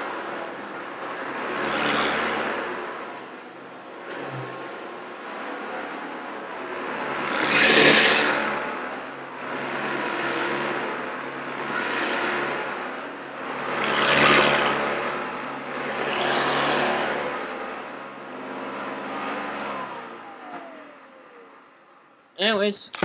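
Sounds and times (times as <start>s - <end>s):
vacuum cleaner running on carpet: 7.0s - 8.9s, 13.5s - 17.8s.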